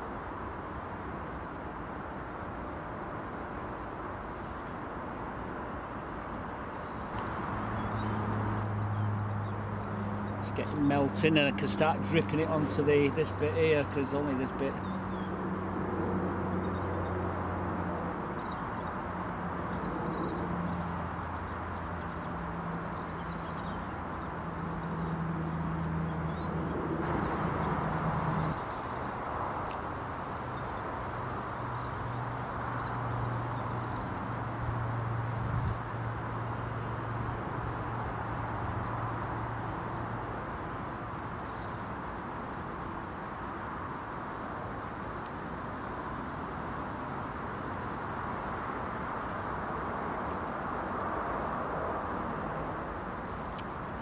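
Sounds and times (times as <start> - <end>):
small birds chirping: 5.8 - 42.4, 47.2 - 50.6.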